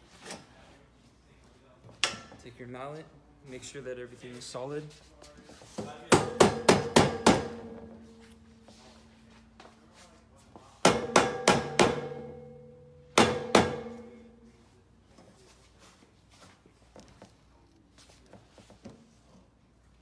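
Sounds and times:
mallet striking steel tubing: 10.9 - 14.4.

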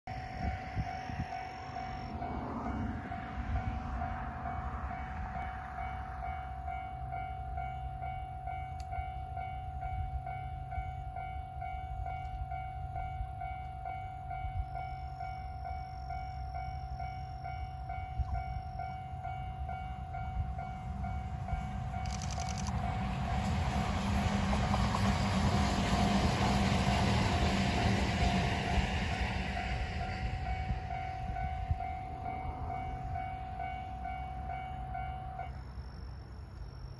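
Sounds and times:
wind noise on microphone: 0.1 - 5.9, 28.0 - 34.2
electric train approaching: 0.1 - 36.9
steady high-pitched tone: 0.1 - 36.9.

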